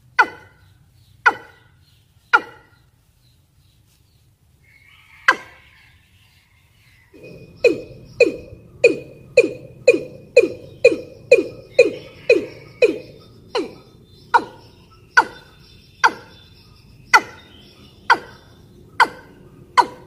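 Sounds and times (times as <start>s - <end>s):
bird calling in falling notes: 7.1s - 16.3s.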